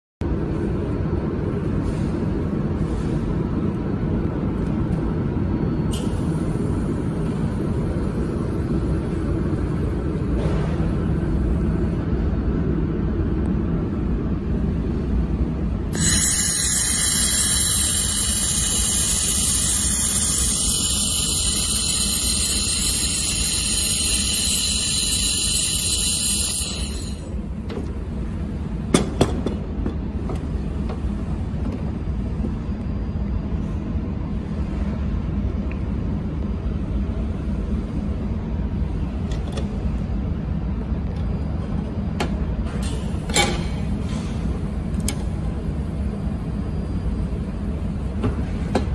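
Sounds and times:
low machine hum: 0.2 - 48.9
laser welder high hiss: 16.0 - 27.4.

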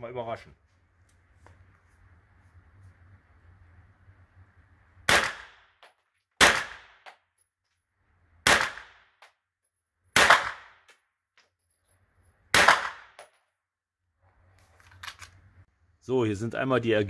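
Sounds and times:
gunshots with echo: 5.1 - 5.6, 6.4 - 7.1, 8.5 - 9.1, 10.2 - 10.8, 12.6 - 13.2.

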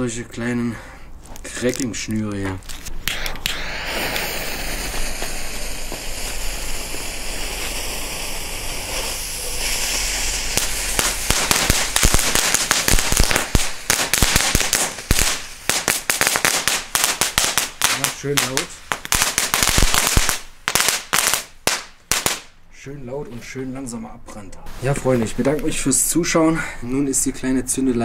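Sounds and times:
firecracker string crackling: 1.4 - 22.6
fuse hissing: 3.0 - 20.5.

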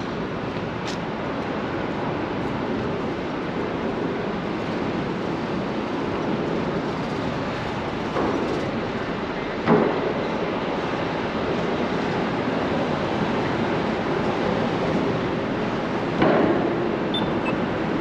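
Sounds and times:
street traffic: 0.0 - 18.0
construction site din: 7.1 - 11.5, 12.1 - 18.0.

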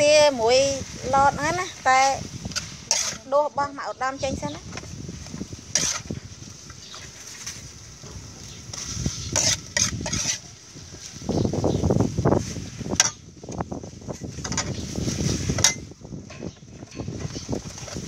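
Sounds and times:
metal spatula scraping wok: 0.2 - 11.4, 14.3 - 18.0.

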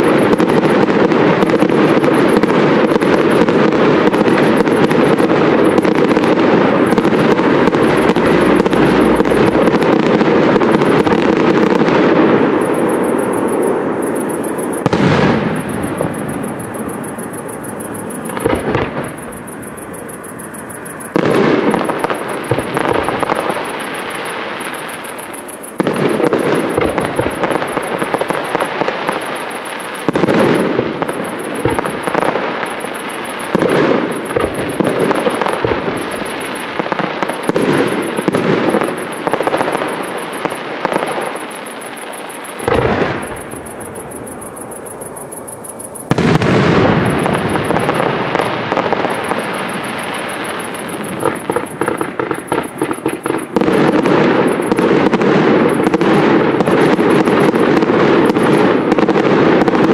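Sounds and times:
fireworks crackling: 0.0 - 59.9
rolling echo: 0.0 - 59.9
firework shell bursts: 12.7 - 58.9.

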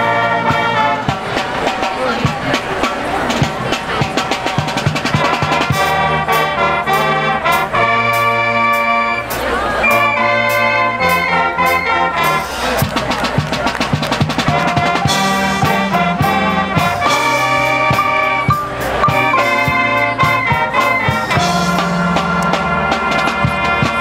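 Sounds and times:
marching band brass chords: 0.0 - 24.0
percussion strikes: 12.5 - 24.0.

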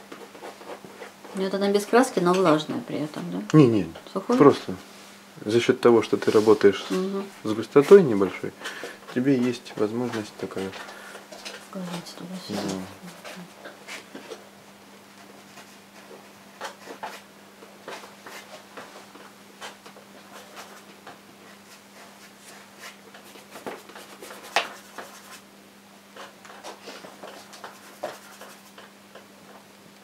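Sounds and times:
paintbrush strokes on canvas: 6.2 - 6.8, 26.2 - 28.9.

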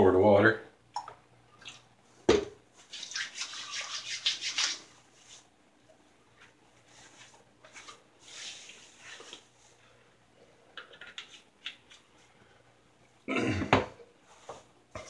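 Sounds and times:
hands rubbing wet skin: 2.8 - 5.5, 6.4 - 9.8.

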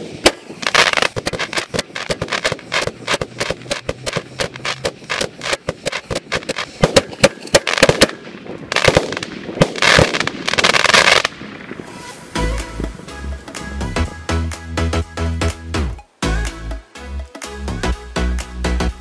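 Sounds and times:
firework cracks and pops: 0.0 - 12.3.

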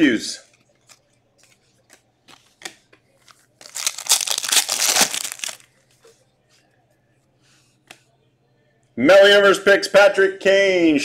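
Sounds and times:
card pack wrapper tearing and crinkling: 3.6 - 5.7.

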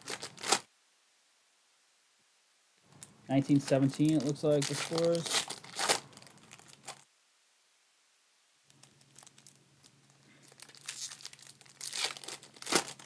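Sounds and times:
plastic wrapper crinkling and tearing: 0.0 - 0.7, 2.9 - 7.0, 8.7 - 13.0.

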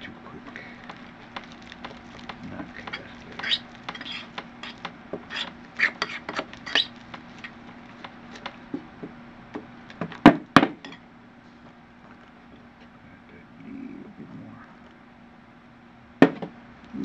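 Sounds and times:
utensil scraping a bowl: 0.8 - 8.6
sharp knocks: 16.2 - 16.6.

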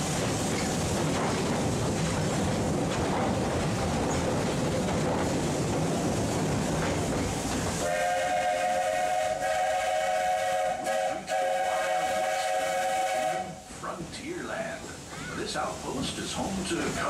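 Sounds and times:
train running with steady rumble: 0.0 - 17.0
steam locomotive chime whistle: 7.8 - 13.6.

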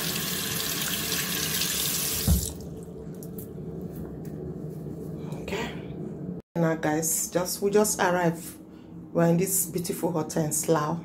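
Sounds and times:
tap water running into sink: 0.0 - 2.7
thump: 2.2 - 2.5.

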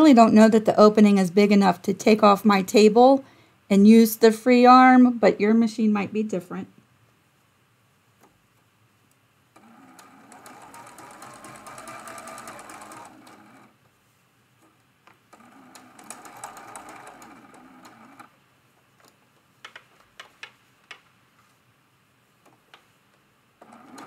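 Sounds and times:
sewing machine stitching: 9.6 - 13.8, 15.3 - 18.3, 23.6 - 24.0.

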